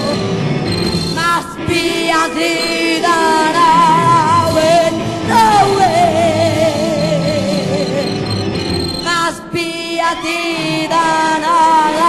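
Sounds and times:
progressive rock music: 0.0s - 9.1s.

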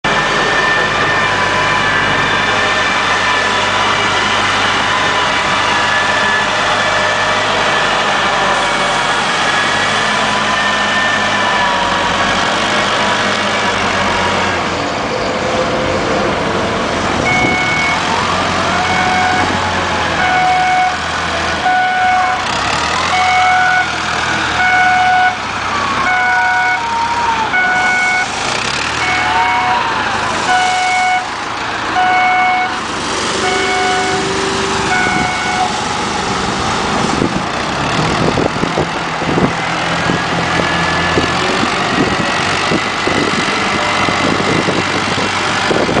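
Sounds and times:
diesel engine running: 0.0s - 46.0s
reversing alarm beeping: 17.2s - 24.0s, 24.6s - 28.4s, 29.0s - 32.8s, 33.4s - 35.8s.

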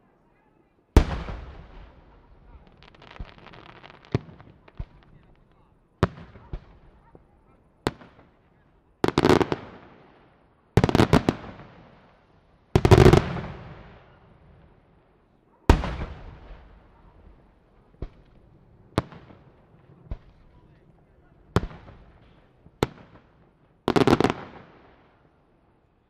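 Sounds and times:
single firework bangs: 1.0s - 7.3s.

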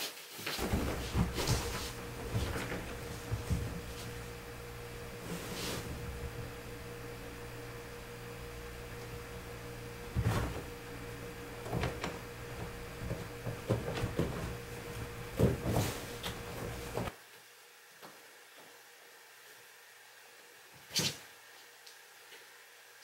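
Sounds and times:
rustling cloth: 0.0s - 17.1s
room hum: 0.4s - 17.2s
soft thumps: 0.6s - 17.1s.

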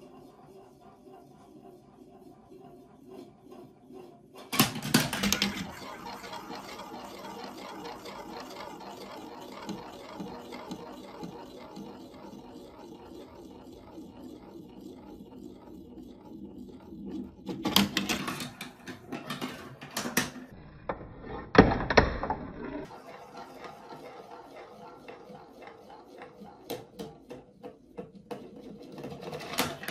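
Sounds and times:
marble rolling in plastic funnel: 4.8s - 19.8s.

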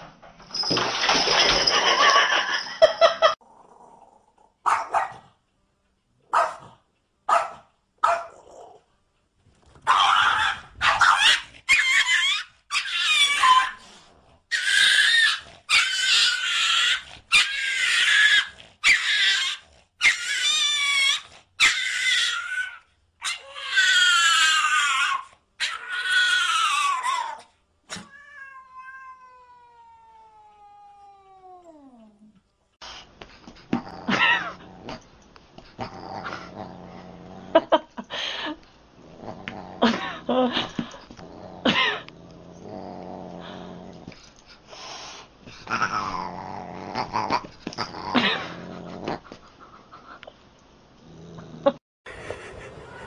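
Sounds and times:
cat yowling: 14.5s - 32.0s.

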